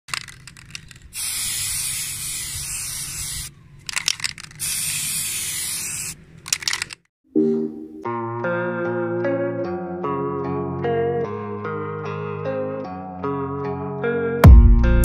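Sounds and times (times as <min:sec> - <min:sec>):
spray can hissing: 0:00.1 - 0:07.0
spray can sputtering clicks: 0:00.1 - 0:07.0.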